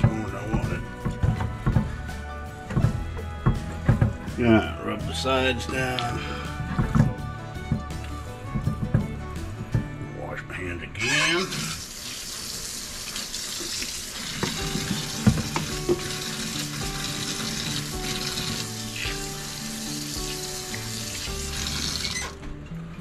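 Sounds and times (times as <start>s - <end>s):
faint background music: 0.0s - 11.8s, 14.4s - 23.0s
faucet running into metal sink: 11.1s - 22.4s.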